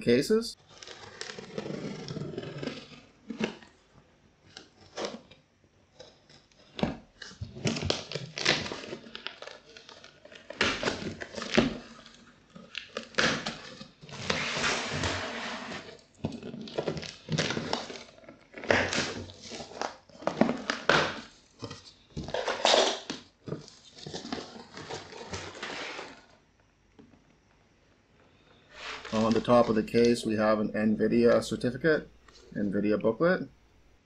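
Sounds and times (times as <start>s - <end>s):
packing tape ripping: 0.6s - 3.7s, 6.0s - 26.4s
cardboard rustling: 0.6s - 26.4s, 28.7s - 30.5s.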